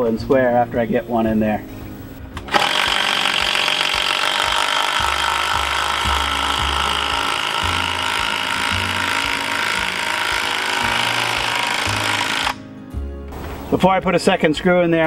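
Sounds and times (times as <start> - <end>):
impact driver hammering: 2.4 - 12.6.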